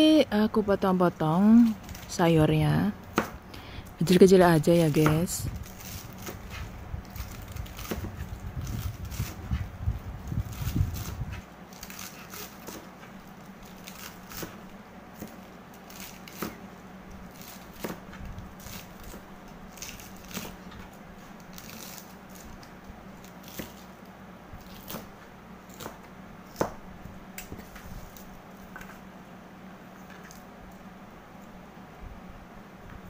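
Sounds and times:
knife chopping on plastic board: 3.1s - 3.4s, 5.0s - 5.2s, 7.8s - 8.2s, 25.7s - 26.8s.

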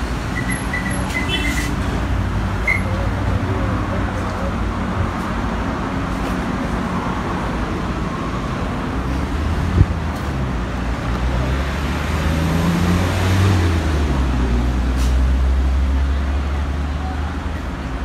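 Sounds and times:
road traffic noise: 0.0s - 18.0s.

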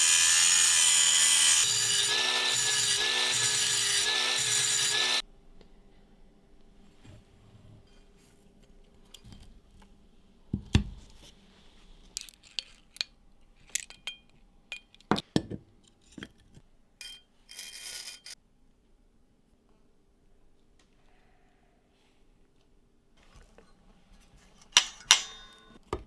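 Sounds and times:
small tools handled on workbench: 12.1s - 18.4s.

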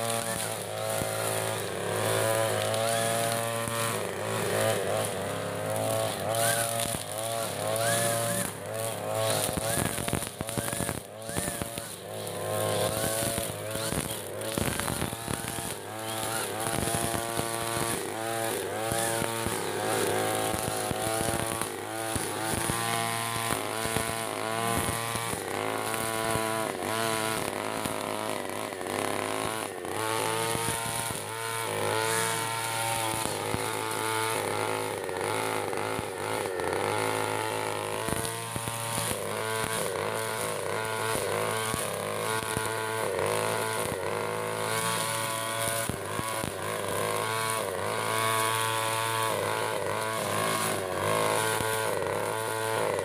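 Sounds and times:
brush cutter engine revving: 0.0s - 53.0s.

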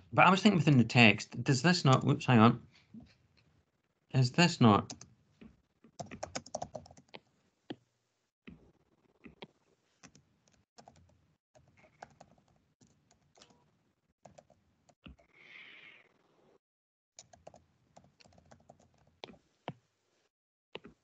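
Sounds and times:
typing on computer keyboard: 6.0s - 7.2s, 10.0s - 13.6s, 14.3s - 14.6s, 17.2s - 19.4s.

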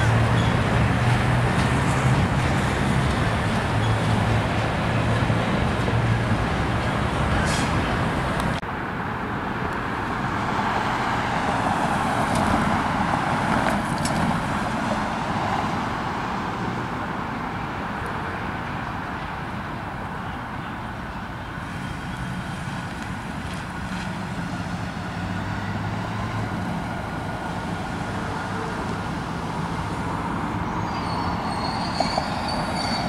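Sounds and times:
diesel locomotive engine humming: 0.0s - 33.0s
vehicle passing with a rush: 21.6s - 33.0s.

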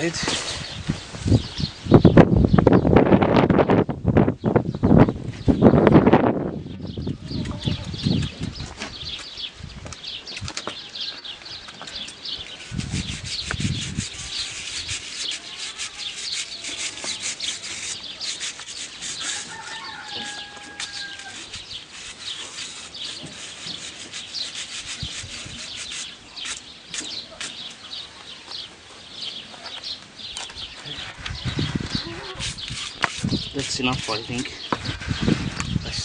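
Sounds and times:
hoof scraping strokes: 11.1s - 27.7s, 30.7s - 35.8s.

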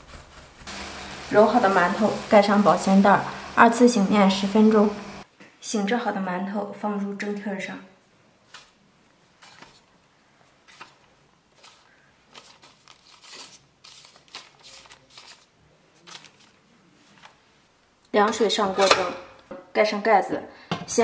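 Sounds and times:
paper rustling: 0.0s - 2.2s, 8.4s - 17.5s.

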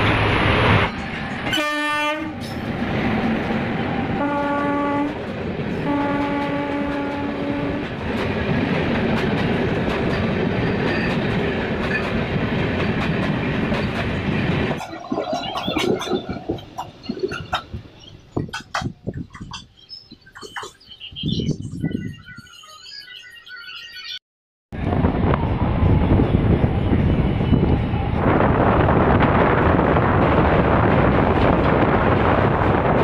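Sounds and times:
locomotive horn blasts: 1.5s - 2.4s, 4.2s - 5.2s, 5.8s - 7.8s
train wheel clicks: 6.8s - 20.8s.

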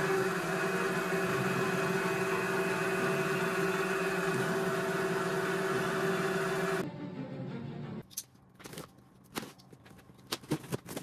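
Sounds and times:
lathe motor hum and whine: 0.0s - 6.8s.

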